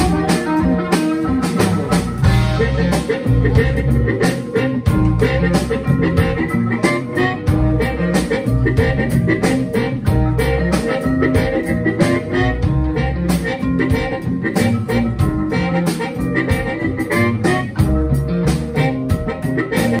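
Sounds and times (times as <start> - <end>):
drum beat: 0.0 - 20.0
electric guitar: 0.0 - 20.0
harmonica: 0.0 - 20.0
upright bass: 0.0 - 20.0.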